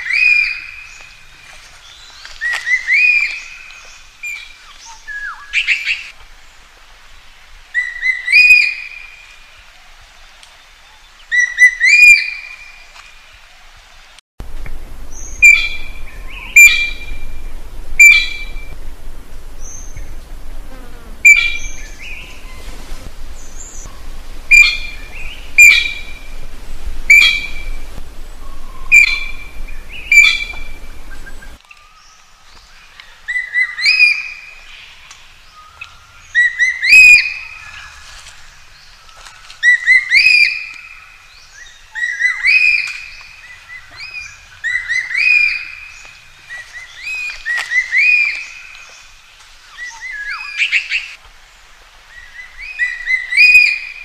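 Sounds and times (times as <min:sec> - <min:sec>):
low background rumble: 0:14.4 - 0:31.6
magpie calling: 0:15.1 - 0:17.4, 0:18.0 - 0:18.7, 0:21.2 - 0:22.7, 0:23.4 - 0:26.4, 0:27.1 - 0:27.9, 0:28.5 - 0:31.6.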